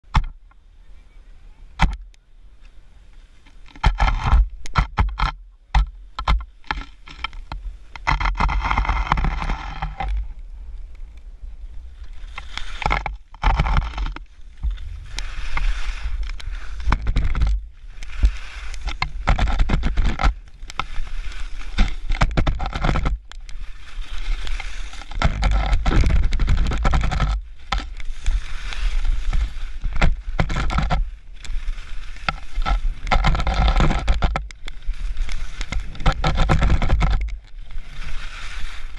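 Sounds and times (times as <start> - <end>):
wind rumbling on microphone: 0.0 - 38.9
skis scraping over snow: 11.5 - 38.9.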